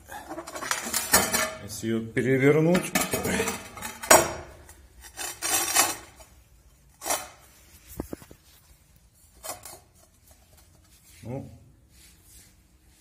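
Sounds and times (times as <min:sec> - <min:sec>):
tiles scraping: 0:00.2 - 0:01.6, 0:02.8 - 0:11.2.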